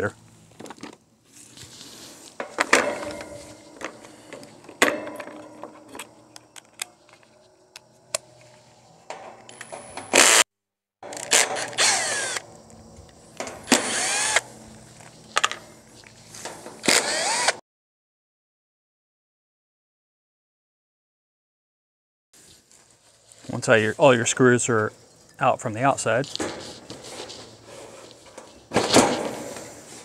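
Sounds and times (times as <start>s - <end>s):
cordless drill motor whirring: 10.2s - 10.4s, 11.2s - 12.4s, 13.7s - 14.4s, 16.8s - 17.6s.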